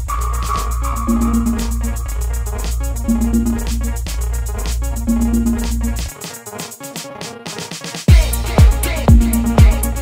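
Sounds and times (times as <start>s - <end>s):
synth notes: 0.0s - 6.1s
hi-hat ticks: 0.0s - 6.6s, 8.1s - 10.0s.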